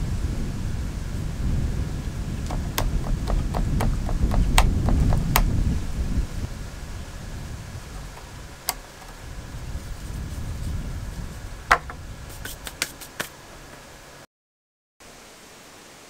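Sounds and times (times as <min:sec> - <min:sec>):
wooden knocks and clicks: 0:02.5 - 0:05.5, 0:08.0 - 0:09.2, 0:11.7 - 0:12.0.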